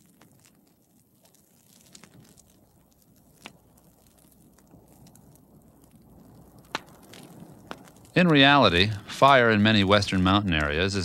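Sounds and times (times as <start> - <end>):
sharp pops of fire: 0.0 - 11.0
wildfire crackling: 0.0 - 11.0.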